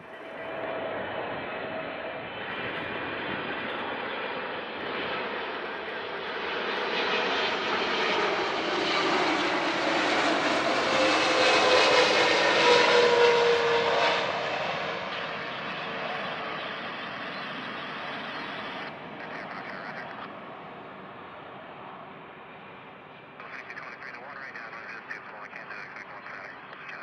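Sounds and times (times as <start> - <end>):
jet engines whining: 0.0 - 27.0.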